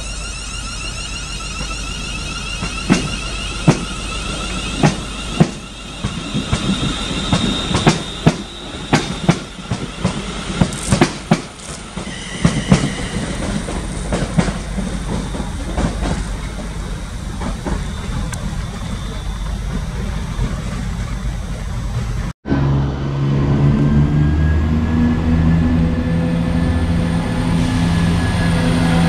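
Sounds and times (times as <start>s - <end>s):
high wheel squeals: 0.0s - 22.3s, 24.2s - 29.0s
low train rumble: 0.0s - 29.0s
train wheels clacking: 0.8s - 22.3s.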